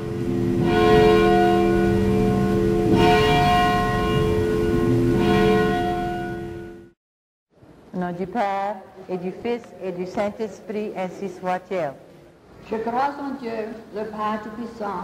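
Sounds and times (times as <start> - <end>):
church bell tolling: 0.0 - 7.0.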